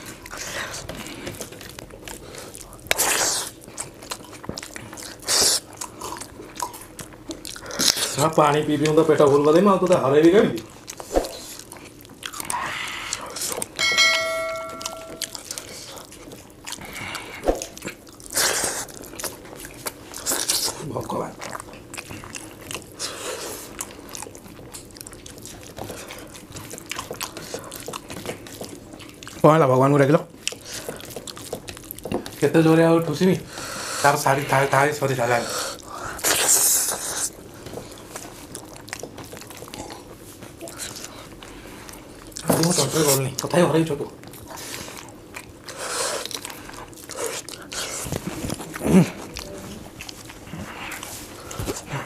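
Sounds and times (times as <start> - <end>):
chewing: 0.0 - 52.0
fingers working food on steel plates: 13.6 - 15.5.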